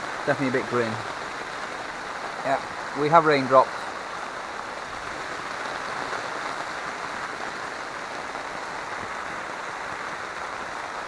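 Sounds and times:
rain pattering on fabric roof: 0:00.0 - 0:11.0.

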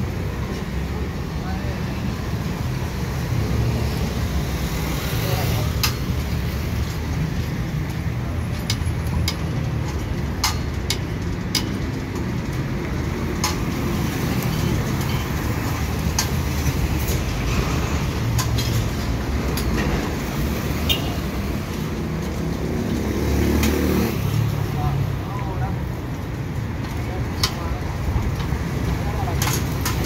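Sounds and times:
metallic clicks and clanks: 0:05.8 - 0:20.5, 0:26.3 - 0:30.0.

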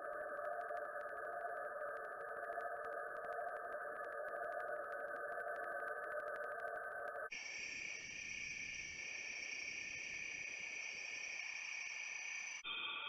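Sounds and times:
insect chorus with fast ticking: 0:00.0 - 0:13.0
higher-pitched insect chorus: 0:07.3 - 0:13.0.

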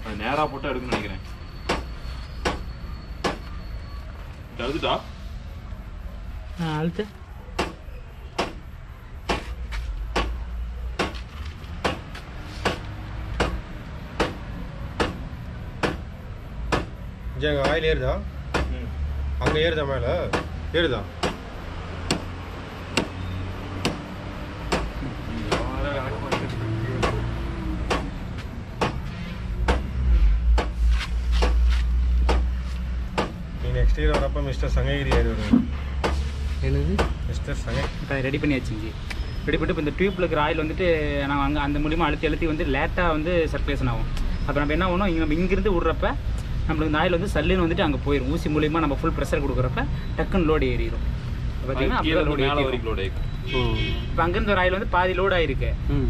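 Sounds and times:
sharp knocks: 0:00.9 - 0:03.5, 0:07.6 - 0:07.8, 0:08.4 - 0:08.6, 0:10.1 - 0:10.4, 0:11.0 - 0:11.2, 0:11.8 - 0:14.4, 0:15.0 - 0:16.1, 0:16.7 - 0:17.0, 0:18.5 - 0:18.8, 0:20.3 - 0:20.6, 0:21.2 - 0:23.2, 0:23.8 - 0:28.2, 0:28.8 - 0:33.4, 0:35.0 - 0:36.3, 0:36.9 - 0:37.2.

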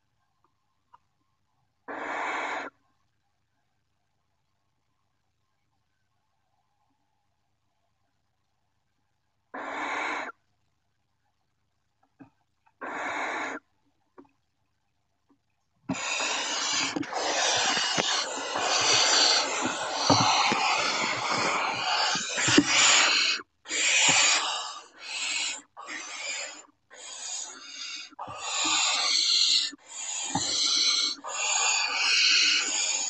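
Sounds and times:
owl chicks hissing: 0:01.9 - 0:02.7, 0:09.6 - 0:10.3, 0:12.8 - 0:13.6, 0:15.9 - 0:33.0.

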